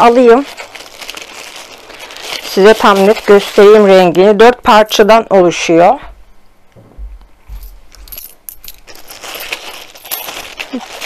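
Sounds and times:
packaging rustling: 0.0s - 4.2s, 7.6s - 11.0s.

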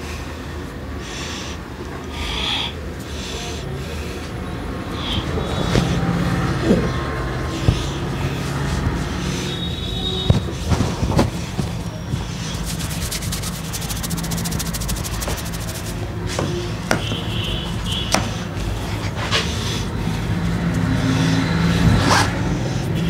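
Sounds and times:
steady low hum: 11.8s - 16.3s
towel rubbing hair: 12.5s - 16.1s.

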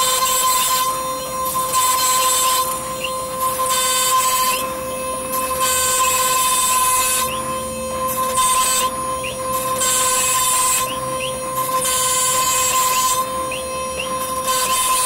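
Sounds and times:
router spindle high whine: 0.0s - 15.0s.

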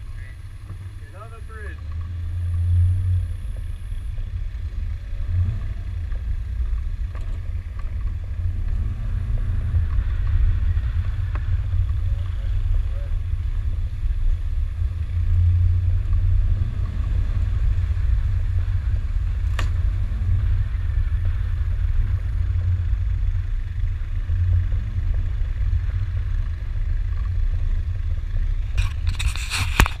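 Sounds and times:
crackling clatter: 0.0s - 30.0s
vehicle low rumble: 0.0s - 30.0s.

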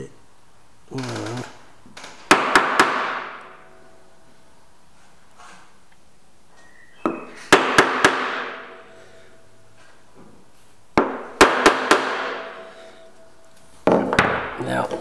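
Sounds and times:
sheet metal ringing: 11.2s - 13.8s.

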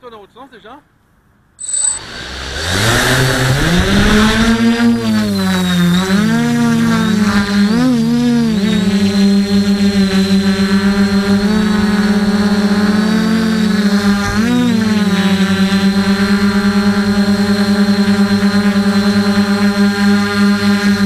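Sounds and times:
high beep: 1.6s - 2.2s
drone motors humming: 1.6s - 21.0s.

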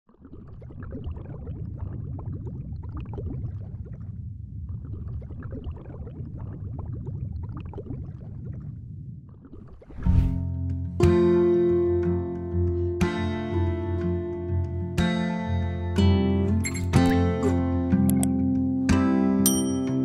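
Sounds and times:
water gurgling and bubbling: 0.1s - 10.5s
rising whoosh: 9.8s - 10.4s.

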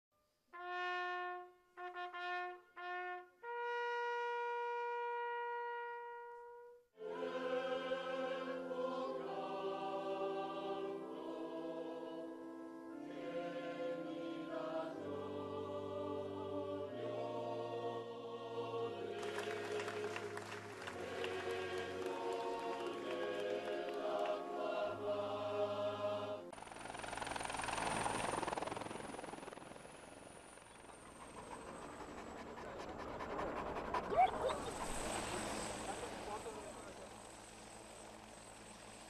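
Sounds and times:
solo trumpet: 0.5s - 6.9s
choir singing chords: 7.0s - 26.5s, 33.6s - 37.0s.

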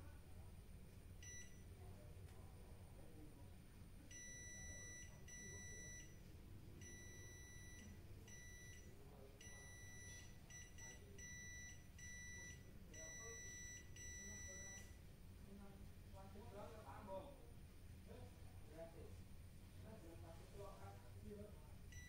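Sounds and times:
multimeter high-pitched beeps: 1.2s - 1.7s, 4.1s - 6.2s, 6.8s - 15.0s.

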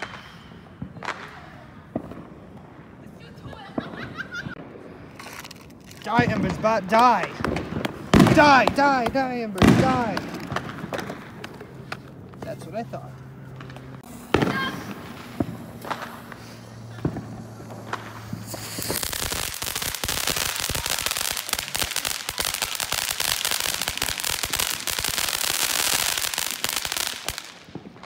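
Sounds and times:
firework pops: 5.1s - 12.6s, 13.5s - 20.4s
firework crackling hiss: 13.7s - 28.0s.

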